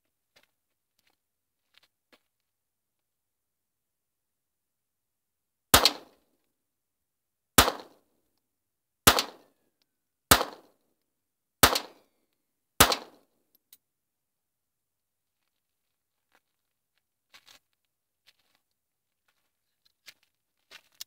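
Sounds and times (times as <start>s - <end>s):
pistol shots: 5.8s - 6.2s, 7.6s - 8.0s, 9.1s - 9.5s, 10.3s - 10.7s, 11.6s - 12.0s, 12.8s - 13.2s.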